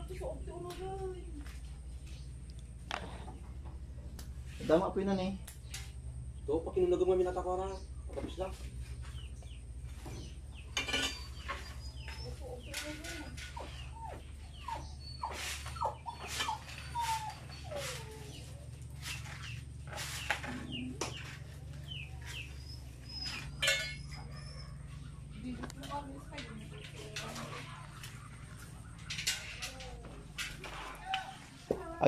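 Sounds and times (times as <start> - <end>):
steady low hum: 0.0 - 32.0
chickens clucking: 7.4 - 32.0.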